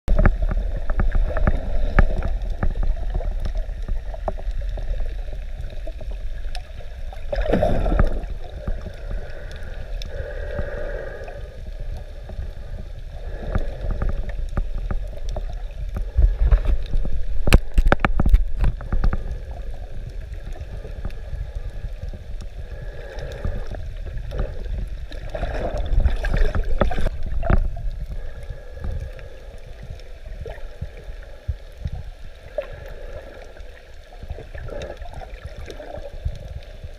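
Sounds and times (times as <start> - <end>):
underwater rumble of moving water: 0.0 - 36.9
sharp crackling clicks: 0.1 - 10.6, 13.4 - 28.2
gurgling bubbles: 0.1 - 36.9.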